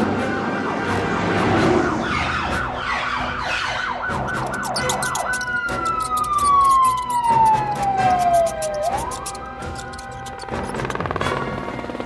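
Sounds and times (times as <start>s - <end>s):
police siren: 0.0s - 9.2s.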